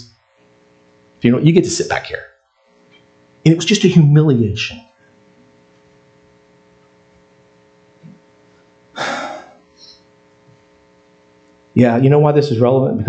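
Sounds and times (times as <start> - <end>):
electrical hum: 0.0 - 13.0
breathy exhale: 9.0 - 10.0.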